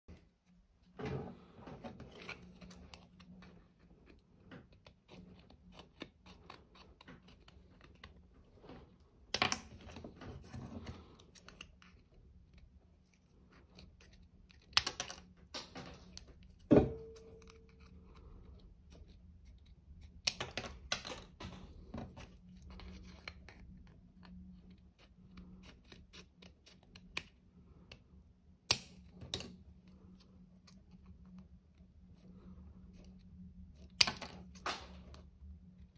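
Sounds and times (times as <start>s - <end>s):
scissors cutting plastic card: 4.1s - 8.3s.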